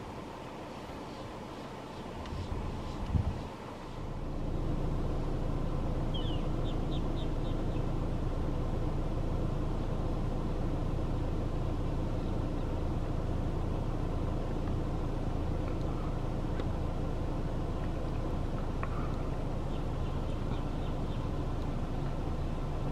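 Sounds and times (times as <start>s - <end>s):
car engine rumbling: 0.0s - 22.9s
bird chirping: 6.0s - 8.1s, 18.1s - 22.7s.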